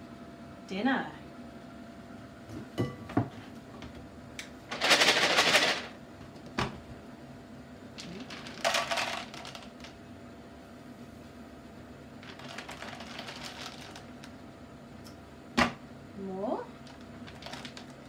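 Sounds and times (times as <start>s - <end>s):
dry kibble rattling in plastic: 4.7s - 5.9s, 8.0s - 10.0s, 12.2s - 14.4s, 16.8s - 18.0s.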